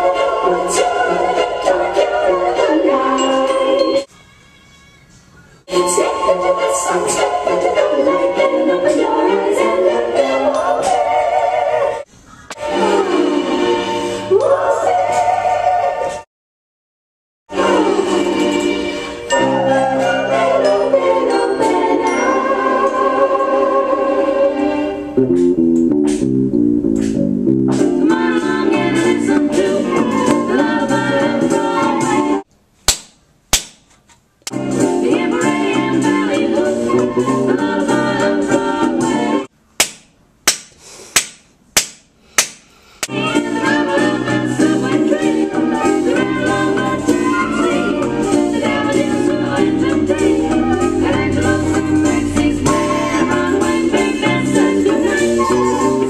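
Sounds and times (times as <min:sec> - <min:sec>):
person singing pop song: 0:00.0 - 0:04.0, 0:05.7 - 0:12.0, 0:27.8 - 0:32.4, 0:34.5 - 0:39.5, 0:43.1 - 0:56.0
organ-like chords: 0:24.8 - 0:27.8, 0:45.1 - 0:55.7
bouncing bass line: 0:25.2 - 0:28.0
band playing: 0:25.2 - 0:29.2, 0:45.6 - 0:56.0
beat: 0:48.0 - 0:55.4.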